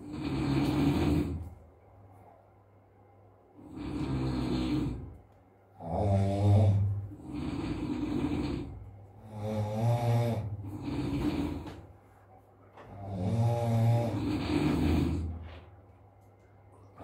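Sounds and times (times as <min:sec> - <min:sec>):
man snoring loudly: 0:00.0 - 0:01.5, 0:03.6 - 0:05.2, 0:05.8 - 0:11.8, 0:12.9 - 0:15.4
noisy breaths: 0:00.0 - 0:01.7, 0:03.6 - 0:16.0.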